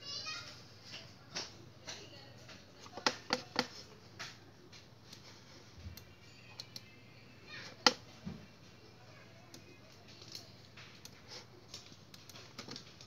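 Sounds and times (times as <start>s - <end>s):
mouse and keyboard clicks: 2.8s - 3.8s.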